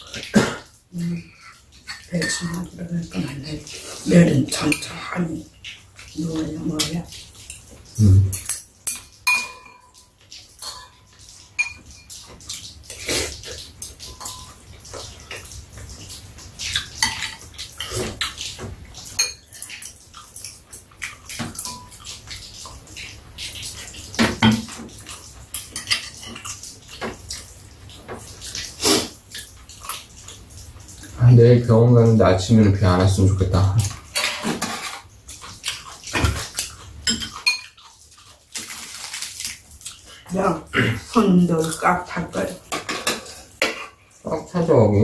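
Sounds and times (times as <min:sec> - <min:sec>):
utensils clinking against bowls: 0:06.4 - 0:13.1, 0:13.7 - 0:15.5, 0:16.7 - 0:18.3, 0:19.1 - 0:22.1, 0:25.5 - 0:26.6, 0:34.0 - 0:35.1, 0:37.0 - 0:37.9, 0:41.2 - 0:44.0.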